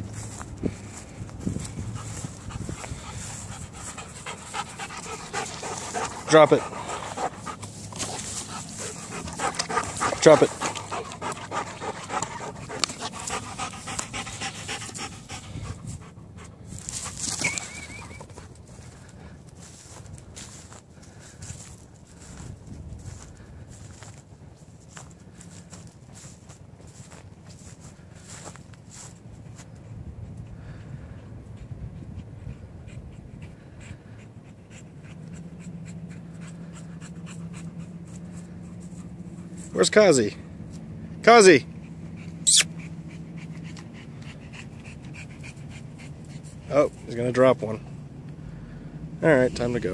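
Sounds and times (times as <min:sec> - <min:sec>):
wind rumble on microphone: 0:00.0 - 0:04.0, 0:15.3 - 0:17.3, 0:18.9 - 0:25.5, 0:29.6 - 0:34.2
footsteps crunching dry grass: 0:00.0 - 0:14.7, 0:16.7 - 0:29.8
steady low hum: 0:00.0 - 0:49.9
dog panting fast: 0:00.3 - 0:24.1, 0:24.9 - 0:40.4, 0:41.4 - 0:47.9
dog whining: 0:17.3 - 0:18.4, 0:42.4 - 0:42.9.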